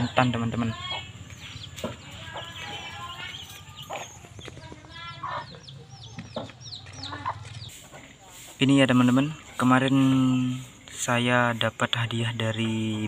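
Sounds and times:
chicken-like clucks: 0.0s - 10.1s.

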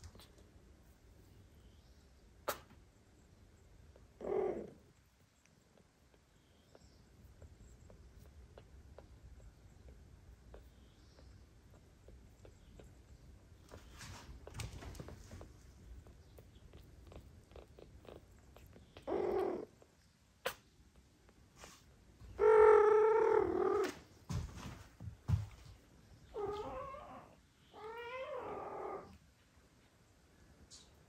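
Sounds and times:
cat meowing: 26.3s - 29.1s.

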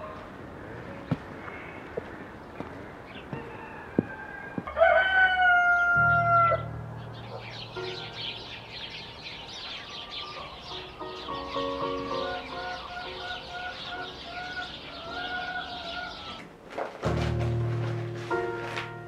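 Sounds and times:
small birds chirping: 0.0s - 4.8s, 6.0s - 16.5s
rooster crowing: 3.3s - 6.7s, 12.1s - 16.5s.

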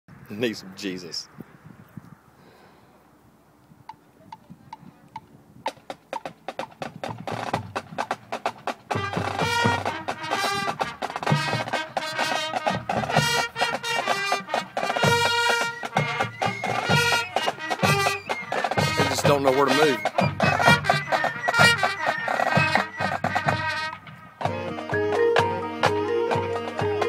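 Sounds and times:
rapid percussion clicks: 5.1s - 27.0s
marching band music with drums: 5.7s - 27.0s.

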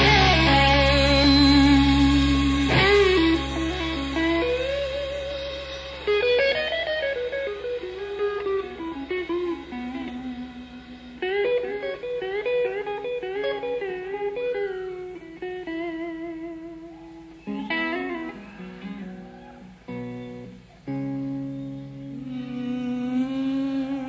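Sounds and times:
electric guitar solo: 0.0s - 24.0s.

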